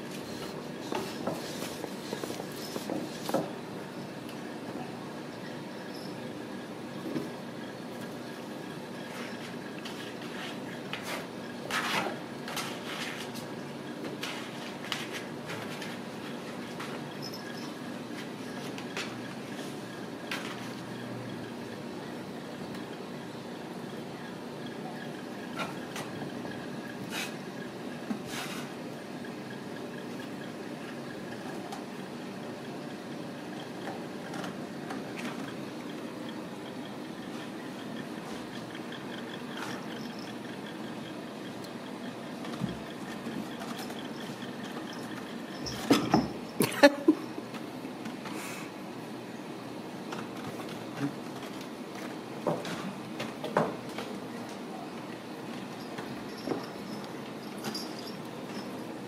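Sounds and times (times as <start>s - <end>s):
mechanical hum: 0.0s - 59.0s
claws scratching carpet: 0.1s - 3.5s.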